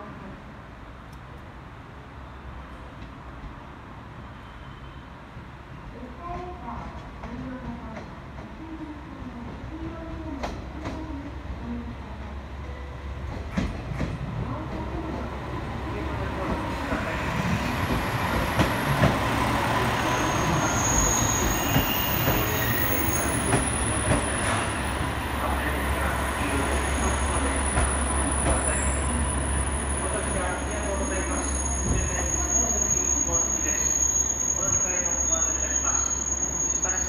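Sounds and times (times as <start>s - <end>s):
diesel train passing: 0.0s - 37.0s
high-pitched squealing: 26.7s - 37.0s.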